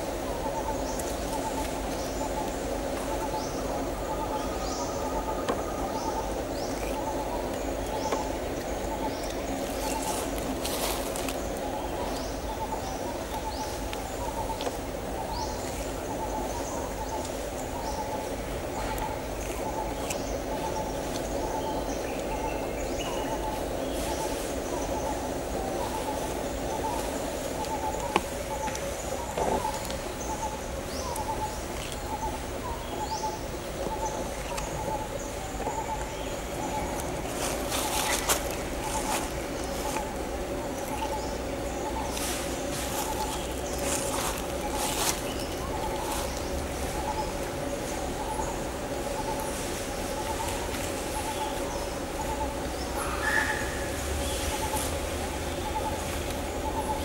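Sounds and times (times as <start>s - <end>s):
low background hum: 0.0s - 57.0s
low background noise: 0.0s - 57.0s
bird cooing: 3.2s - 7.5s.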